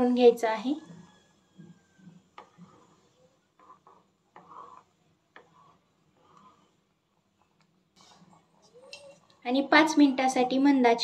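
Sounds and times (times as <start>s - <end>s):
spatula scraping metal pot: 1.8s - 6.9s.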